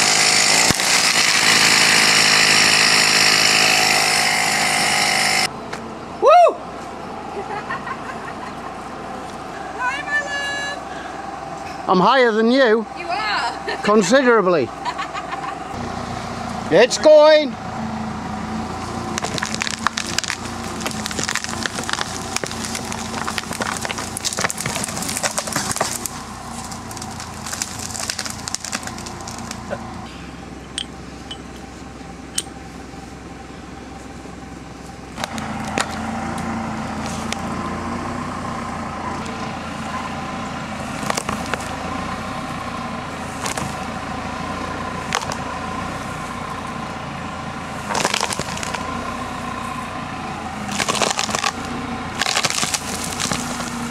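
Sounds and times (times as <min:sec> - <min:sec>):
wood cracking and splintering: 0:00.0 - 0:05.5, 0:19.0 - 0:29.8, 0:40.8 - 0:41.8, 0:43.3 - 0:43.9, 0:45.1 - 0:45.4, 0:47.8 - 0:48.9, 0:50.6 - 0:53.9
tractor engine running: 0:00.0 - 0:53.9
branches crashing: 0:18.8 - 0:29.9, 0:40.8 - 0:42.6, 0:43.2 - 0:44.0, 0:45.0 - 0:46.6, 0:47.7 - 0:49.8, 0:50.6 - 0:53.9.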